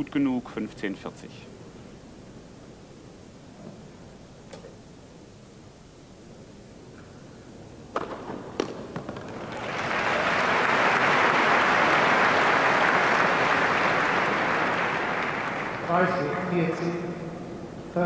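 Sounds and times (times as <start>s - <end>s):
tennis ball struck by racket: 7.9s - 9.4s
tennis ball bouncing: 7.9s - 9.6s
crowd applauding: 9.0s - 17.0s.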